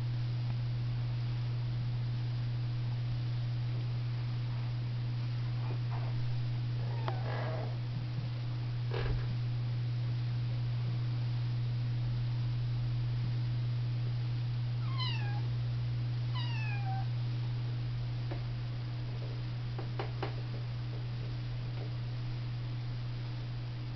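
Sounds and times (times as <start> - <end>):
low hum: 0.0 - 23.9
kitten meowing: 14.8 - 15.4, 16.4 - 17.1.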